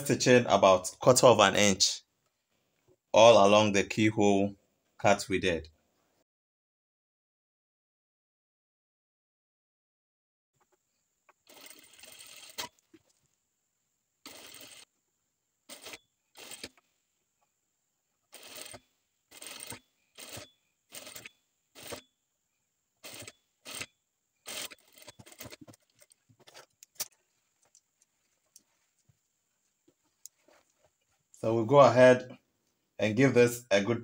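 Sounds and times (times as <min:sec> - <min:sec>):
sewing machine running: 0:11.4 - 0:12.7, 0:14.2 - 0:14.9, 0:15.7 - 0:16.8, 0:18.3 - 0:22.0, 0:23.0 - 0:26.0.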